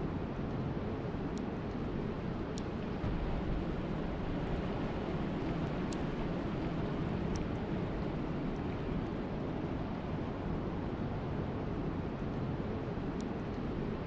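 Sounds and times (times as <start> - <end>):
wind and rain rushing: 0.0 - 14.0
faint raindrop ticks: 0.3 - 10.2, 12.1 - 13.8.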